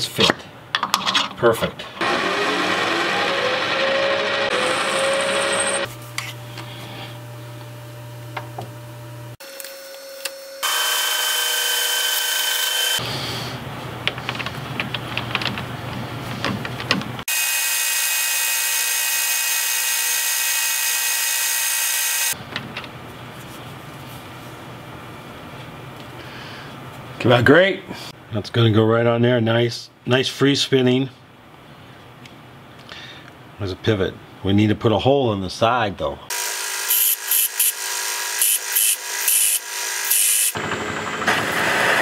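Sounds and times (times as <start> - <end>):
metal lathe machining whine: 2.0 - 5.9, 10.6 - 13.0
lathe humming: 2.0 - 9.4.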